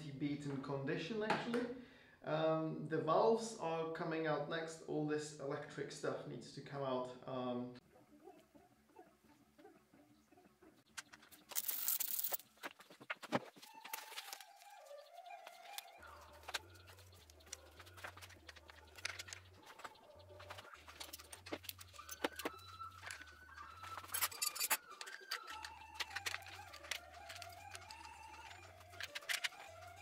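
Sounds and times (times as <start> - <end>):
clicks and rattles of wiring: 10.9 - 14.8, 15.4 - 30.0.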